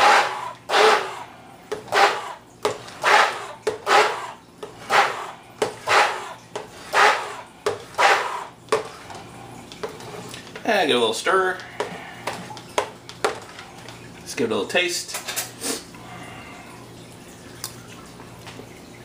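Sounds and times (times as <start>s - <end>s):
stick blender whirring: 0.0s - 10.4s.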